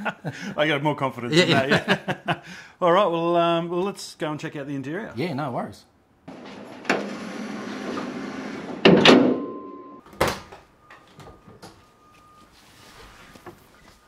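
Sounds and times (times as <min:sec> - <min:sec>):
car bonnet slamming shut: 0:08.8 - 0:10.5.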